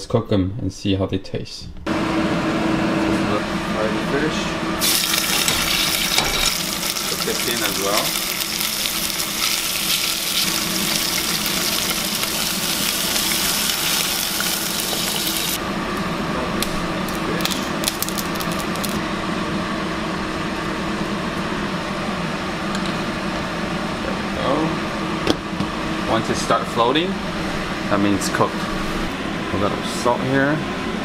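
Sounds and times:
steady low hum: 0.0s - 31.0s
fish sizzling in a saucepan: 4.8s - 15.6s.

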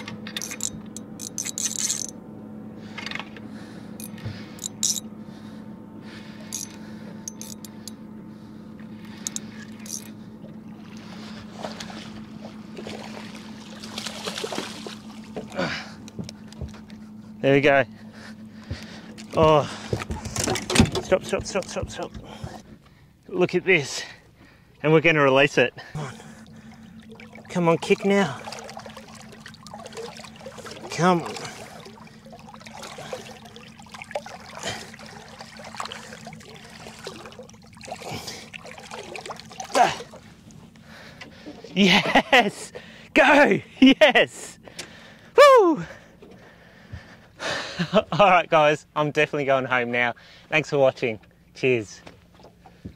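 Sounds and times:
water sloshing: 8.8s - 17.3s, 24.0s - 42.9s, 52.0s - 52.9s.

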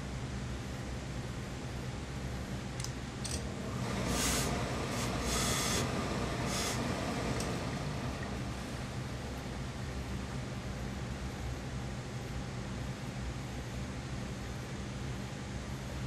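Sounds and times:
low background hum: 0.0s - 16.0s
steam iron hissing: 3.4s - 8.9s.

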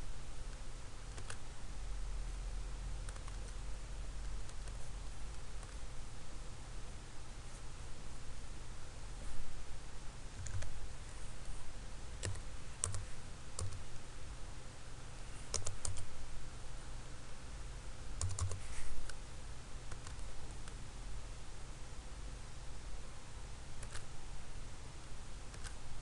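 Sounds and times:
steady low hum: 0.0s - 26.0s
keyboard keys clicking: 1.1s - 1.4s, 3.1s - 3.6s, 10.4s - 10.7s, 12.2s - 13.0s, 15.5s - 16.1s, 18.2s - 19.2s.

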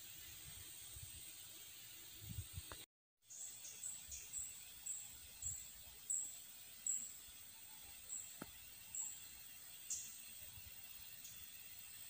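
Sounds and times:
insect chirps: 0.0s - 12.0s
high-pitched insect drone: 3.2s - 12.0s.

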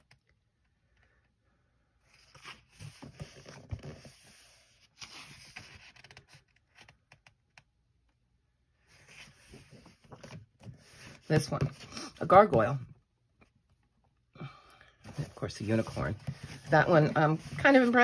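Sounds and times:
paper pages rustling: 8.9s - 12.1s, 15.1s - 18.0s.

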